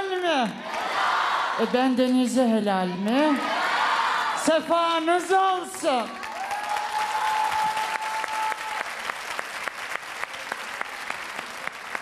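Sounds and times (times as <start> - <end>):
applause: 5.6 - 12.0.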